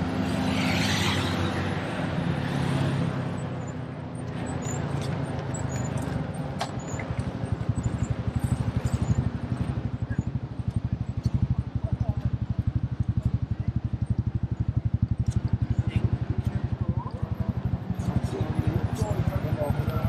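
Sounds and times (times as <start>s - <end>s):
low fast throbbing engine: 0.0s - 20.0s
vehicle engine passing: 0.0s - 20.0s.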